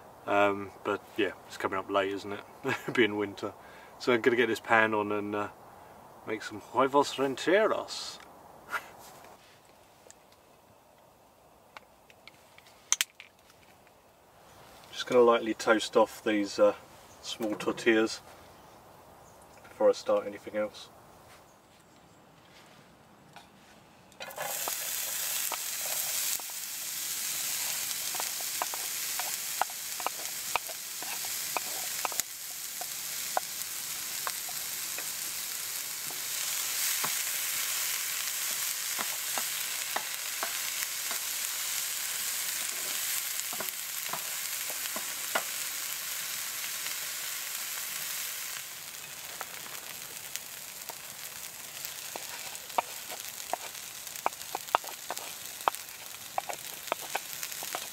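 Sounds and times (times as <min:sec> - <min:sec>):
oil popping: 0:24.2 - 0:57.9
vegetables sizzling in a frying pan: 0:24.2 - 0:57.9.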